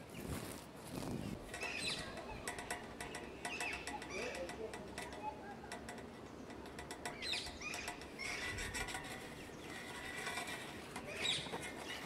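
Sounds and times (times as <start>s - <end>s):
clicks and rubbing on microphone: 0.0s - 12.0s
songbirds chirping: 0.0s - 12.0s.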